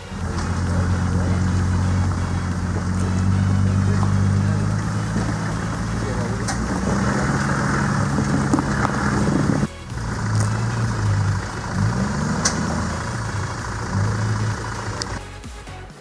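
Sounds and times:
engine working under load: 0:00.0 - 0:15.2.

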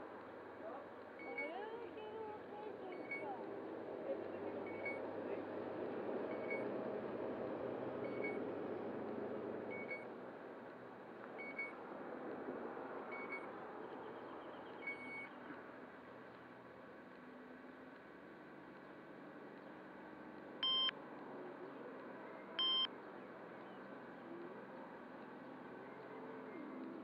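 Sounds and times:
high electronic beep: 0:20.6 - 0:20.9, 0:22.6 - 0:22.9.

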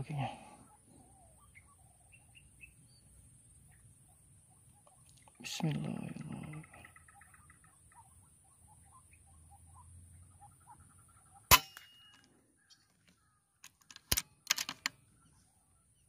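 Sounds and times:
faint bird chirps: 0:00.0 - 0:13.6, 0:15.0 - 0:16.0
rifle shot: 0:11.5 - 0:12.1
sharp metallic clicks: 0:13.6 - 0:15.0.

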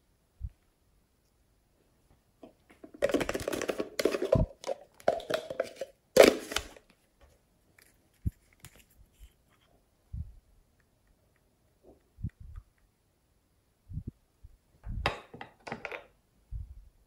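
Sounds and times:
hands rummaging plastic containers: 0:02.7 - 0:06.9.

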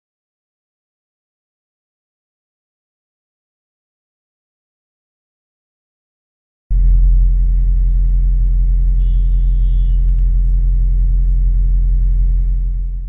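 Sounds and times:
faint high whine: 0:06.7 - 0:13.0
motor vehicle engine rumble: 0:06.7 - 0:13.0.

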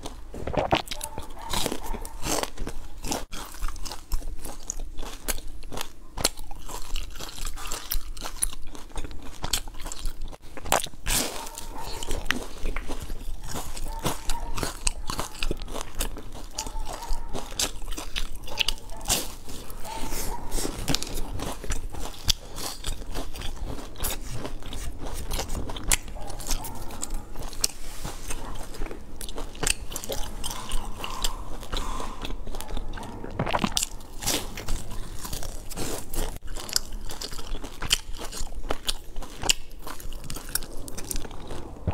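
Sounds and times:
crunching pastries: 0:00.0 - 0:41.9
wet mouth sounds: 0:00.0 - 0:41.9.

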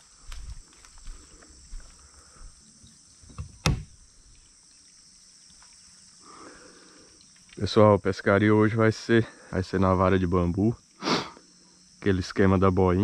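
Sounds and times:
footsteps on muddy ground: 0:00.0 - 0:02.6
high-pitched insect buzz: 0:00.0 - 0:13.0.

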